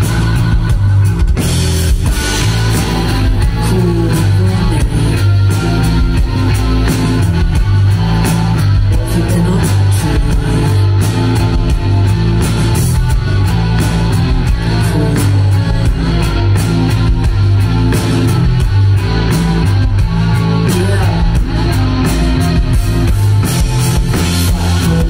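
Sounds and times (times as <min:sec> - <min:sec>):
drum kit hits: 0:00.0 - 0:09.1
bass guitar: 0:00.0 - 0:25.0
electric guitar: 0:00.0 - 0:25.0
woman singing: 0:03.4 - 0:06.3, 0:08.9 - 0:11.0, 0:14.6 - 0:16.4, 0:24.2 - 0:25.0.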